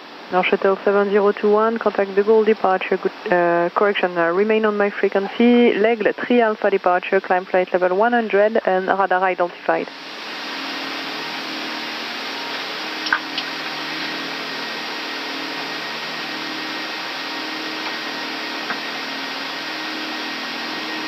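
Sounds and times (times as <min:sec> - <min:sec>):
rushing air and engine noise: 0:09.9 - 0:21.0.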